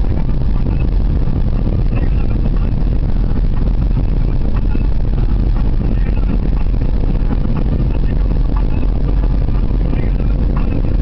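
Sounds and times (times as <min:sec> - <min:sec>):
car engine rumble: 0:00.0 - 0:11.0.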